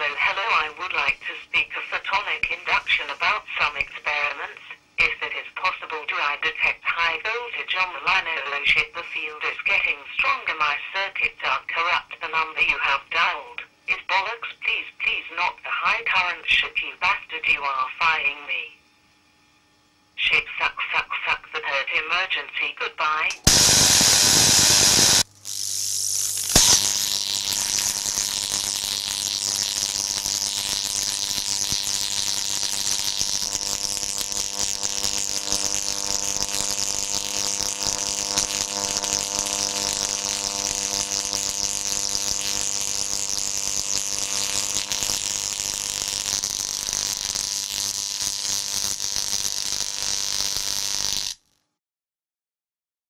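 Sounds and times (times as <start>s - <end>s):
electrical buzzing hum with hiss: 0.0s - 51.6s
electric arc crack: 0.1s - 5.3s, 23.2s - 51.6s.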